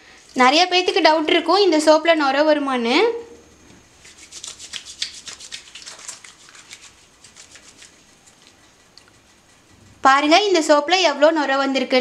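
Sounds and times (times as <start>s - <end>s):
wet hands rubbing soap: 3.9s - 9.7s.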